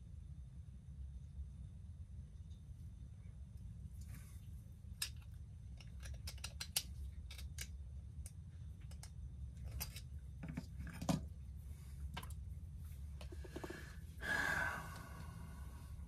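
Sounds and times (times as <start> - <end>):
steady low hum: 0.0 - 16.0
small tools clicking and snipping: 5.0 - 10.7.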